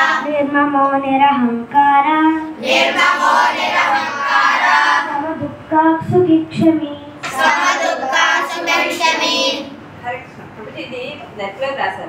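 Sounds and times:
children chanting together: 0.0 - 0.3, 2.6 - 5.4, 7.2 - 9.7.

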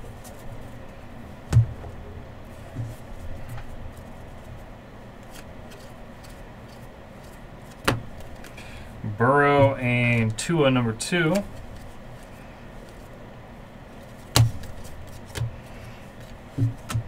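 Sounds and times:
trading cards rustling: 5.2 - 8.7.

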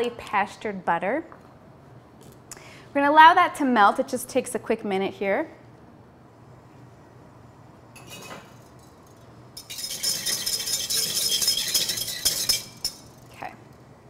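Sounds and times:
wire whisk rattling in saucepan: 8.6 - 13.3.

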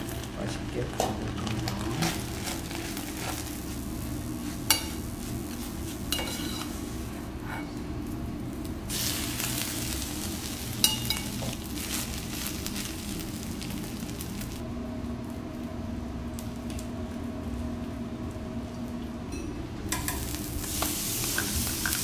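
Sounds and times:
light sizzle: 0.0 - 22.0
metal spatula scraping pot: 6.1 - 6.8.

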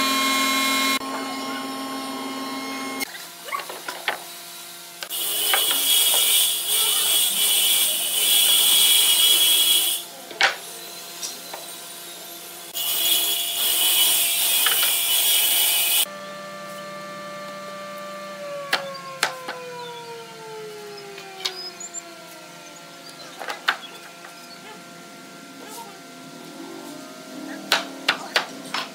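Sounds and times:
machine hum winding down: 0.0 - 3.1, 16.0 - 28.9
power tool high-pitched noise: 0.0 - 3.5, 4.1 - 28.9.

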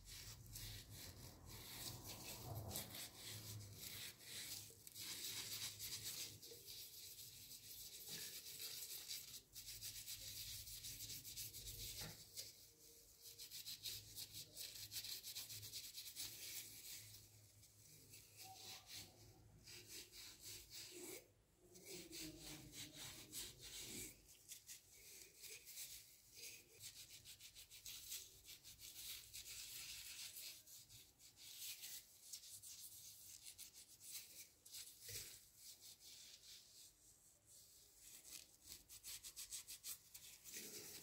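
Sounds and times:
steel wool scrubbing brass: 0.0 - 41.0.

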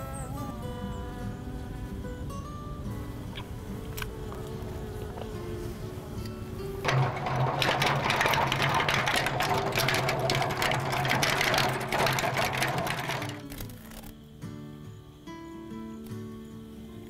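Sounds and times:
honey extractor gears whirring: 6.8 - 14.1.

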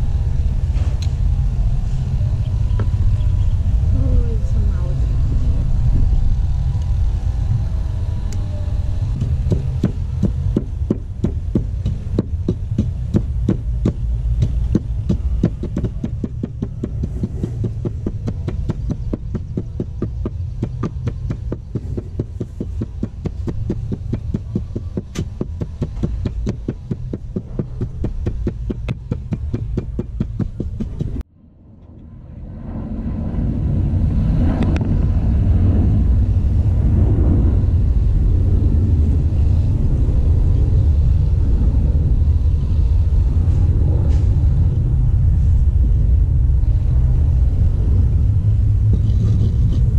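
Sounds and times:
low rumble: 0.0 - 49.9
wooden pestle pounding in mortar: 9.2 - 31.2.

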